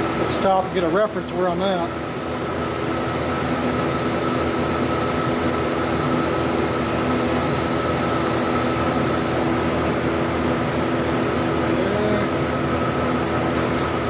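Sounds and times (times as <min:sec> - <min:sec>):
welding arc buzzing hiss: 0:00.0 - 0:09.4, 0:13.2 - 0:14.0
steady hum: 0:00.0 - 0:14.0.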